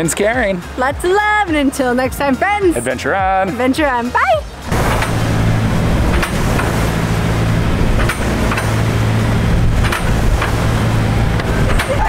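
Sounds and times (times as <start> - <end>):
boat engine humming: 0.0 - 12.0
wind and water rushing: 0.0 - 12.0.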